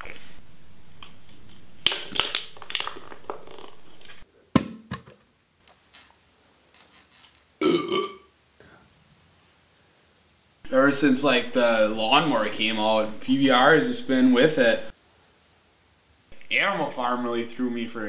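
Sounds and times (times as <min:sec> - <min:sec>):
crackling crunch: 0:00.0 - 0:04.2
steady hum: 0:00.0 - 0:04.9.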